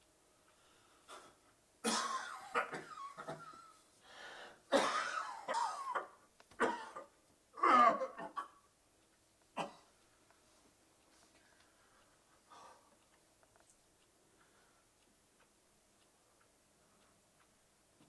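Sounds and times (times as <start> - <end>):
man coughing: 1.8 - 3.6, 4.7 - 8.6.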